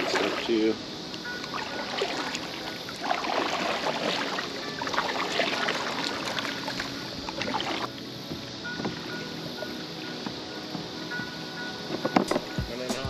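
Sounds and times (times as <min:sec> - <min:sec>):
paddle splashing in water: 0:00.0 - 0:00.7, 0:01.4 - 0:09.3.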